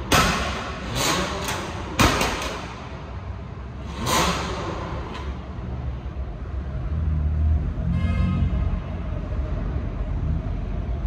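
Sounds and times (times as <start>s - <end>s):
car engine revving: 0.0s - 10.8s.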